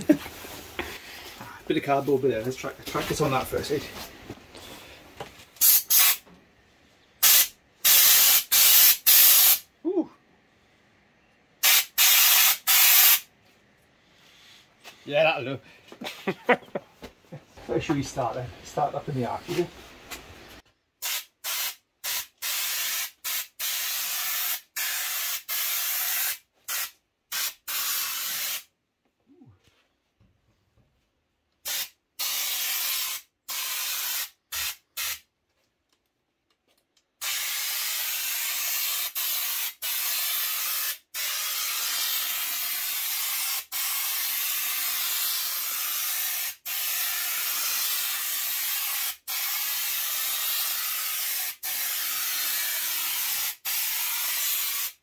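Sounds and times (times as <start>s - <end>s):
spray gun hissing: 5.6s - 6.2s, 7.2s - 9.6s, 11.6s - 13.3s, 37.2s - 55.0s.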